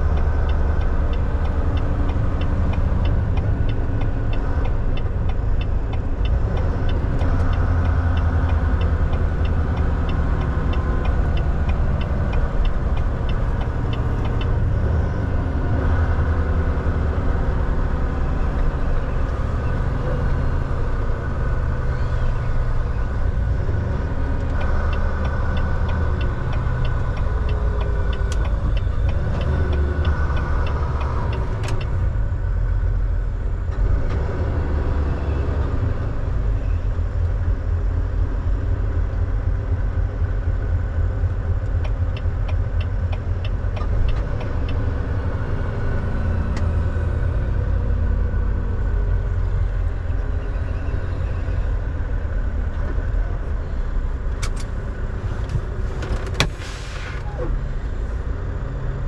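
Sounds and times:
light evenly spaced ticks: 0:00.0 - 0:14.8, 0:24.3 - 0:31.9
truck engine rumble inside cab: 0:00.0 - 0:59.0.

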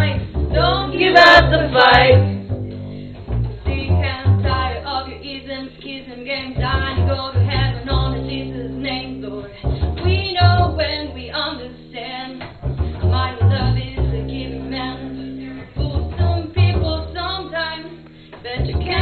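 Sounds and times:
double bass playing low notes: 0:00.0 - 0:19.0
person singing: 0:00.6 - 0:02.4.

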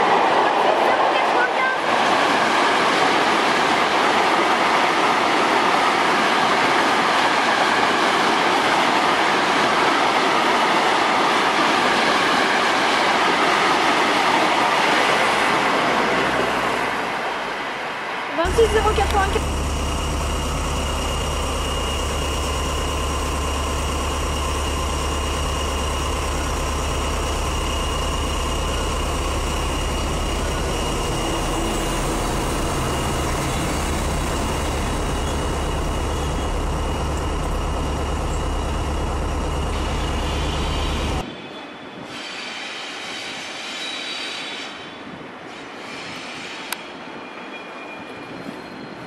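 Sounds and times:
diesel locomotive rumbling: 0:00.0 - 0:17.6, 0:18.4 - 0:41.3
electric locomotive hauling wagons: 0:00.0 - 0:49.0
locomotive high whine: 0:18.4 - 0:41.3.

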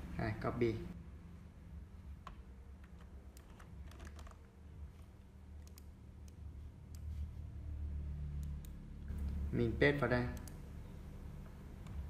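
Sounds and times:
faint low hum: 0:00.0 - 0:12.0
keyboard and mouse clicks: 0:02.2 - 0:07.1, 0:10.3 - 0:10.6.

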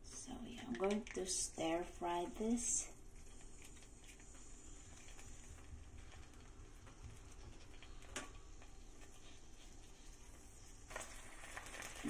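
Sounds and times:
spice paste sizzling in oil: 0:08.4 - 0:12.0.

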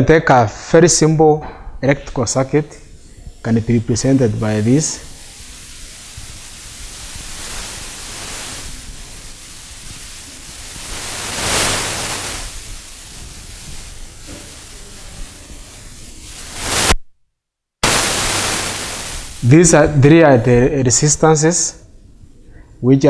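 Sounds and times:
steady hiss: 0:01.8 - 0:17.0, 0:17.8 - 0:23.0.

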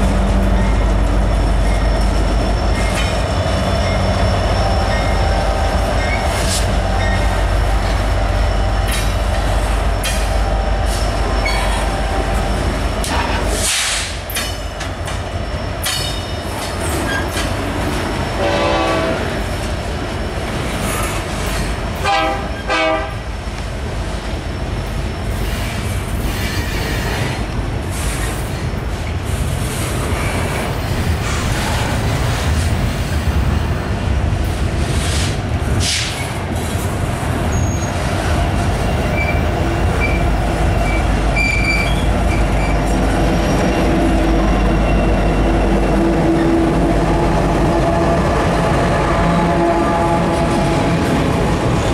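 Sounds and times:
diesel locomotive rumble: 0:00.0 - 0:51.9
train wheels clicking over rail joints: 0:05.9 - 0:11.9, 0:13.0 - 0:18.2
train horn blasts: 0:18.4 - 0:19.4, 0:22.0 - 0:23.2, 0:47.6 - 0:51.1
wheel flange squeal: 0:37.5 - 0:38.0, 0:39.1 - 0:45.5.

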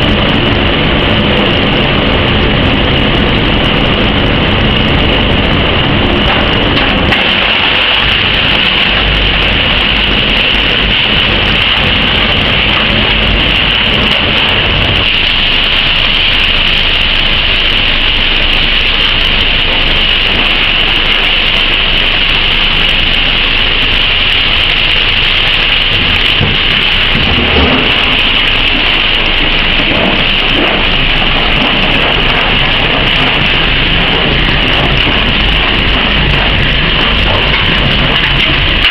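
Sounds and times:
heavy low rumble: 0:00.0 - 0:38.9
shredder grinding: 0:04.9 - 0:17.2, 0:17.9 - 0:38.9.

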